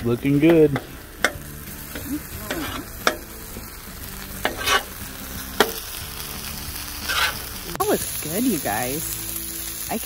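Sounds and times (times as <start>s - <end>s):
meat sizzling on griddle: 0.0s - 10.0s
metal spatula scraping: 0.8s - 5.9s, 6.5s - 7.8s.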